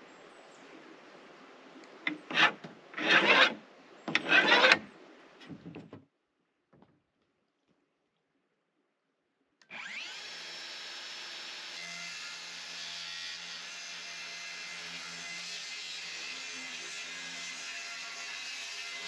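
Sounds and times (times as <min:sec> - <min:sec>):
circular saw cutting plywood: 0:02.1 - 0:04.8, 0:09.7 - 0:19.0.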